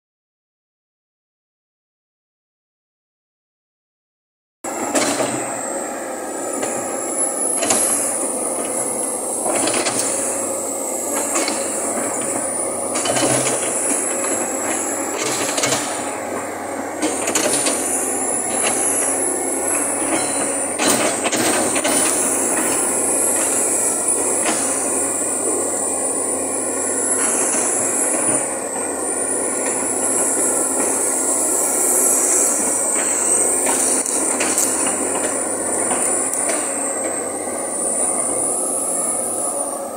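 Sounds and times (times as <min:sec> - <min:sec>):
excavator engine and hydraulics: 0:04.6 - 0:39.9
high squeal: 0:17.5 - 0:39.9.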